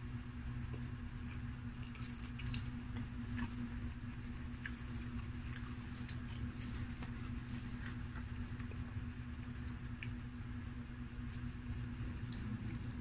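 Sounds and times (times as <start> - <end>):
steady low hum: 0.0 - 13.0
wet eating sounds: 0.7 - 10.2, 12.2 - 13.0
pizza slice crackling: 1.8 - 10.2.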